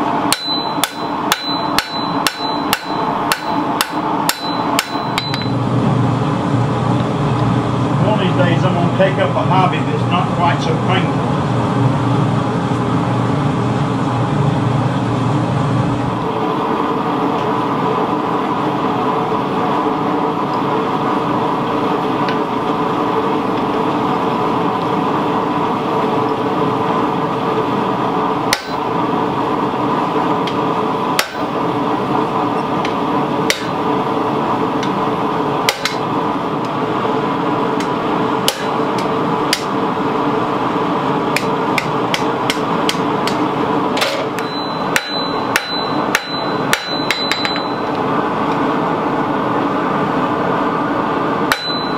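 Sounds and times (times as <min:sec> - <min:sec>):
steady drone: 0:00.0 - 0:51.9
hammer striking steel on anvil: 0:00.3 - 0:05.6, 0:28.5 - 0:28.9, 0:31.2 - 0:31.6, 0:33.5 - 0:33.8, 0:35.7 - 0:36.0, 0:38.5 - 0:38.8, 0:44.1 - 0:47.9, 0:51.5 - 0:51.9.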